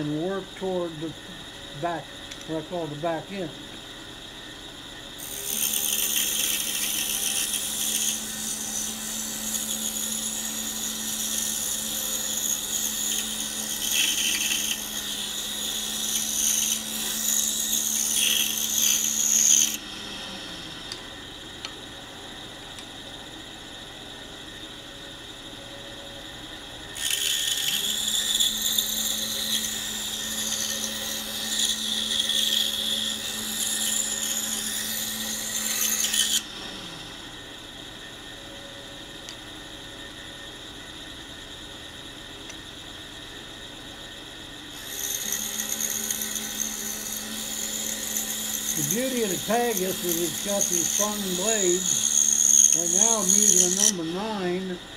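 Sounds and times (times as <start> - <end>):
bandsaw motor humming: 0.0 - 54.9
blade hissing through wood: 44.8 - 54.8.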